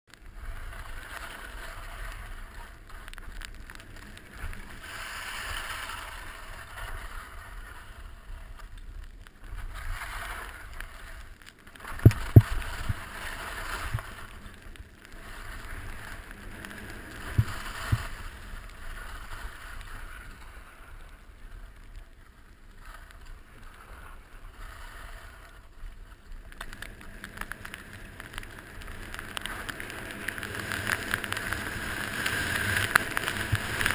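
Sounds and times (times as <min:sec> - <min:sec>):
wind rumble on microphone: 0:00.1 - 0:33.9
skis hissing on snow: 0:00.3 - 0:03.3, 0:04.0 - 0:08.8, 0:09.5 - 0:21.7, 0:22.7 - 0:26.2, 0:27.9 - 0:33.9
sharp thumps: 0:12.0 - 0:13.0.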